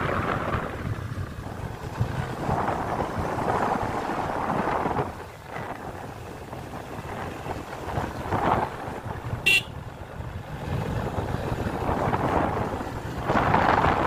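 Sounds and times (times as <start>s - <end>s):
motorcycle road noise: 0.0s - 14.0s
wind buffeting microphone: 0.0s - 14.0s
horn beep: 9.5s - 9.7s.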